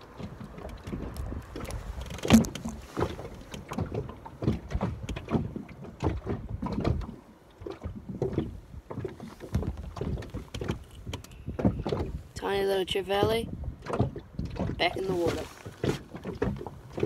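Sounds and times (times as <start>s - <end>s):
knocks and thumps on boat: 0.0s - 17.0s.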